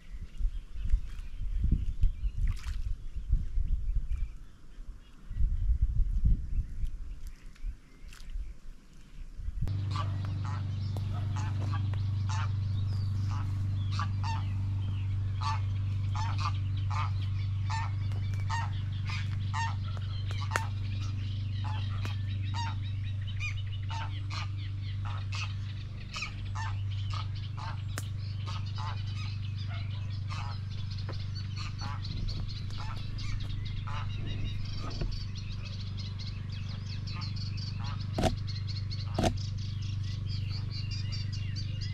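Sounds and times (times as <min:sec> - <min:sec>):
low rumble: 0:09.4 - 0:41.9
geese honking: 0:09.7 - 0:41.9.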